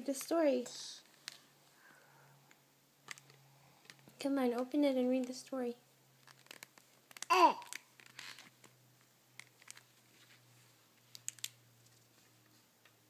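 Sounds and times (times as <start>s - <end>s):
book pages rustling: 6.2s - 8.8s, 9.4s - 12.7s.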